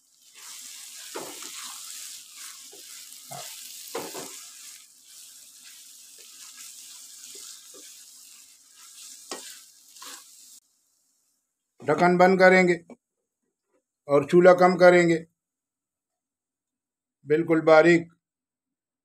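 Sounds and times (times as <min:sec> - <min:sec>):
daal sizzling in a pan: 0:00.0 - 0:11.8
spoon knocking and scraping pan: 0:00.4 - 0:04.8, 0:05.6 - 0:08.1, 0:08.7 - 0:10.3.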